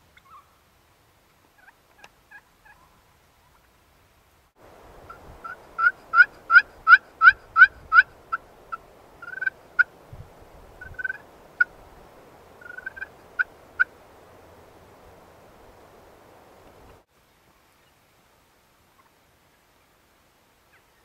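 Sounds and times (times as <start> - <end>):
turkey call yelps: 0.2 - 0.6, 1.6 - 3.7, 5.1 - 8.1, 8.7 - 9.9, 10.8 - 11.7, 12.6 - 13.9.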